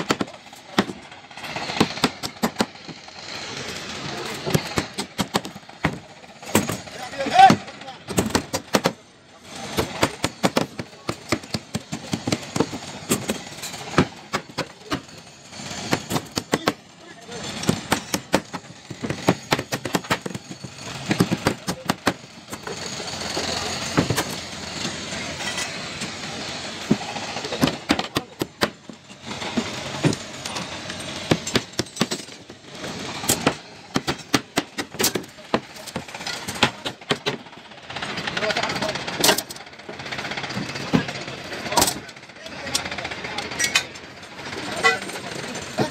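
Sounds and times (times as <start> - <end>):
metal knocks and clanks: 33.2 - 37.5.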